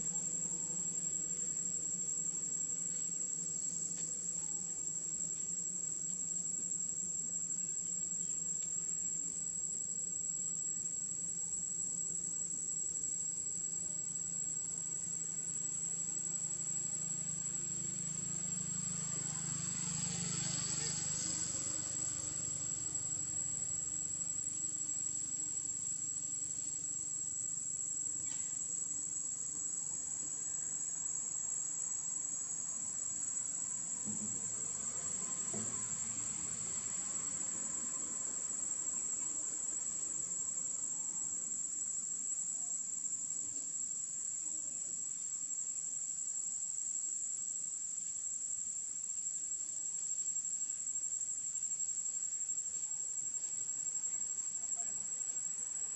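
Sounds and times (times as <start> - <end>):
high-pitched insect drone: 12.6 - 55.8.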